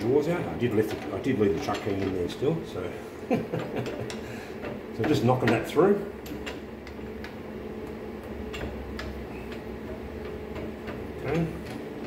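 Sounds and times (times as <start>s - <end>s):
steady low hum: 0.0s - 12.0s
light metal taps and clicks: 3.6s - 11.8s.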